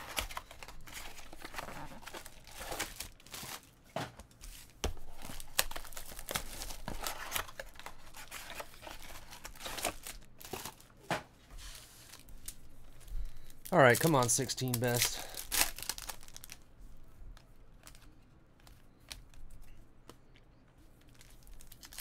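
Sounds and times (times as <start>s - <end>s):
shrink-wrap crinkling and tearing: 0.0s - 3.7s, 5.0s - 10.8s, 13.2s - 16.6s, 21.1s - 22.0s.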